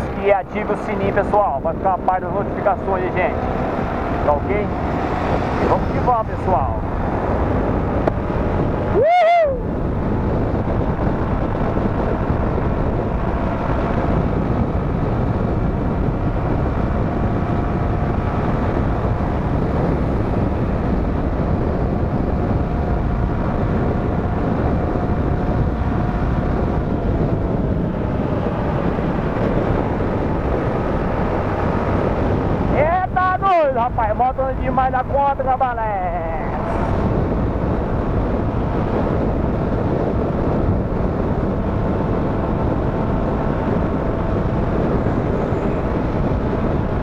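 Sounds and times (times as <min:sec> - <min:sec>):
engine and tyre drone: 0:00.0 - 0:47.0
wind rush over microphone: 0:00.0 - 0:47.0.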